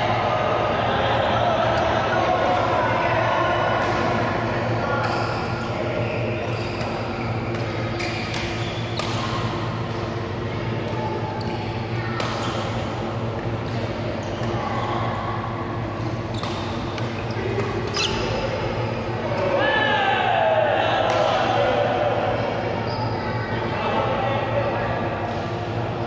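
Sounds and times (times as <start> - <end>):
steady low hum: 0.0 - 26.0
rackets hitting shuttlecock: 6.4 - 10.2, 16.3 - 18.3.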